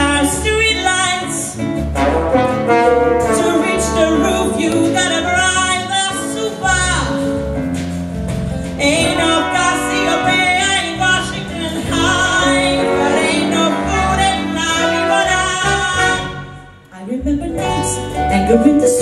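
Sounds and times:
woman singing into microphone: 0:00.0 - 0:01.6, 0:03.3 - 0:07.1, 0:08.8 - 0:16.4, 0:17.0 - 0:19.0
instrumental backing music: 0:00.0 - 0:19.0.

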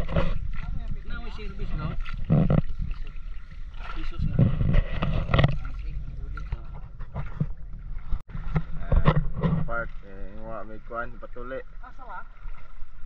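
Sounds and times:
paddle strokes: 0:00.0 - 0:13.0
water sloshing along hull: 0:00.0 - 0:13.0.

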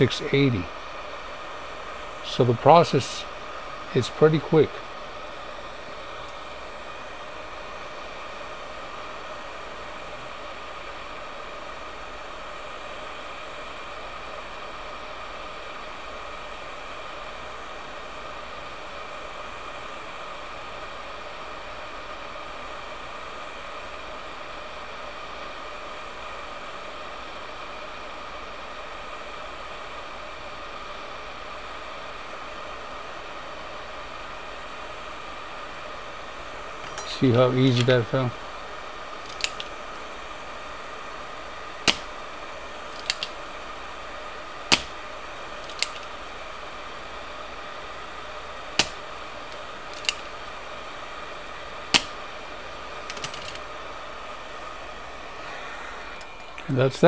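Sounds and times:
heat guns blowing hot air: 0:36.3 - 0:57.0.

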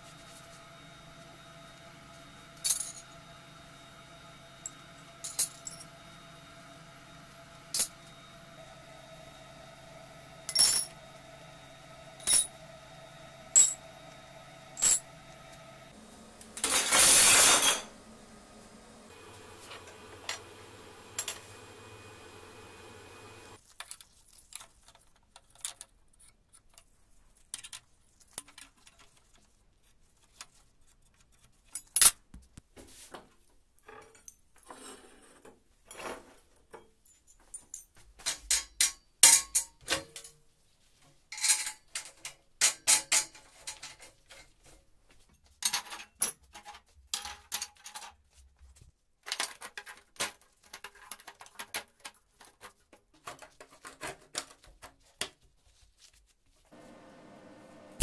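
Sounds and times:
metal tools clinking on workbench: 0:04.6 - 0:05.9, 0:10.5 - 0:11.0, 0:12.2 - 0:12.6, 0:13.5 - 0:13.8, 0:14.8 - 0:15.1, 0:16.5 - 0:18.0, 0:41.3 - 0:44.1.

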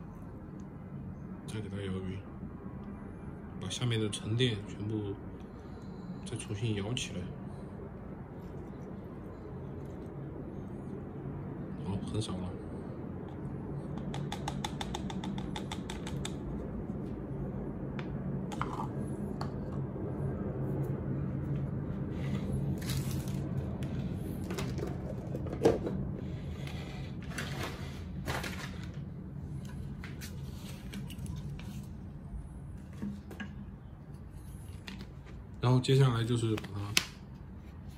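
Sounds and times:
steady low hum: 0:00.0 - 0:37.9
small clicks and taps: 0:13.9 - 0:16.4.

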